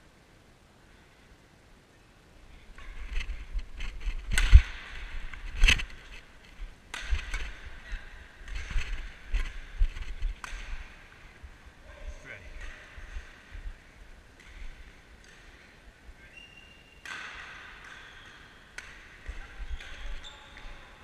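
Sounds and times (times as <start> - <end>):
racket hitting shuttlecock: 4.3 - 6.0, 6.8 - 11.3, 14.3 - 15.9, 17.0 - 20.8.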